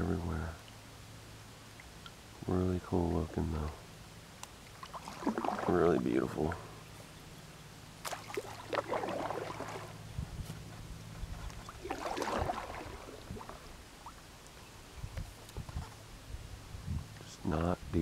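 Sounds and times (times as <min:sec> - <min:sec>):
paddle splashing in water: 0:04.6 - 0:06.2, 0:08.0 - 0:10.0, 0:11.4 - 0:14.3
water splashing and gurgling: 0:04.6 - 0:06.8, 0:08.0 - 0:10.1, 0:11.5 - 0:14.5.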